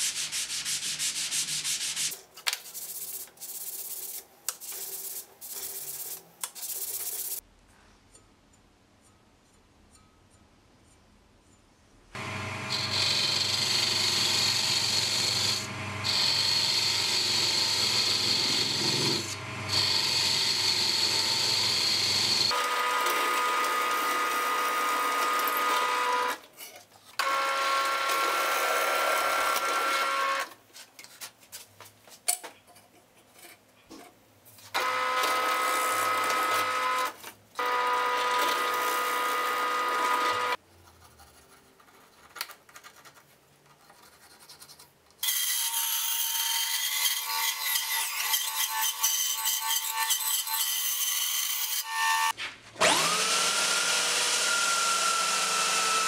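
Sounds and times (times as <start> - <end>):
drill press motor whining: 12.2 - 24.4.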